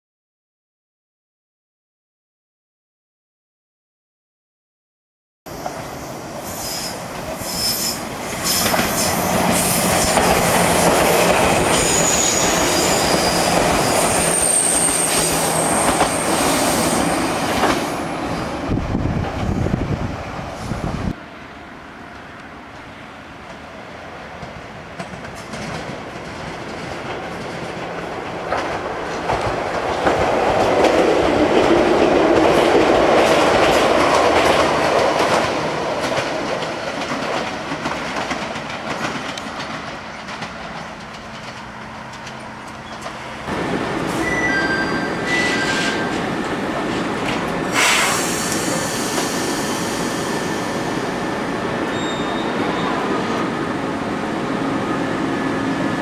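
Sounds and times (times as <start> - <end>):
steady train running noise: 5.5 - 56.0
train wheels clattering over rail joints: 24.4 - 43.3.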